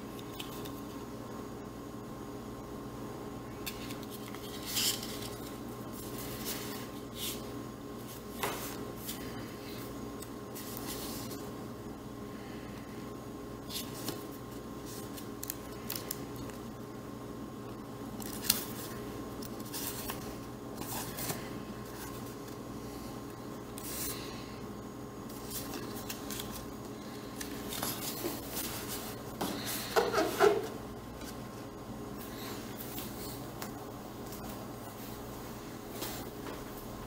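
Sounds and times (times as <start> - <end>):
faint hum: 0.0 - 37.0
paper pages rustling: 3.6 - 9.3, 10.5 - 11.5, 13.6 - 16.6, 18.2 - 22.6, 25.3 - 30.6.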